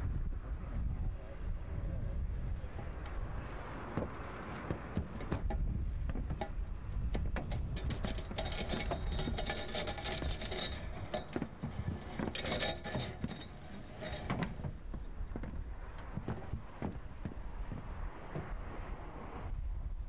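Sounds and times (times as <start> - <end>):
wind rumble on microphone: 0.0 - 20.0
boots on metal roof: 3.7 - 18.8
metal hardware clinking: 7.4 - 14.6.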